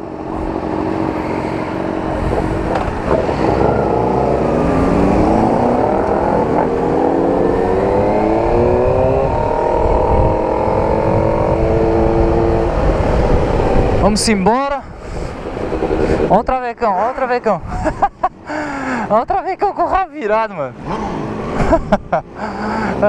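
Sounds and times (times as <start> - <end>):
motorcycle engine accelerating: 0.0 - 14.3, 15.2 - 16.5
wind on microphone: 0.2 - 16.6, 17.6 - 18.3.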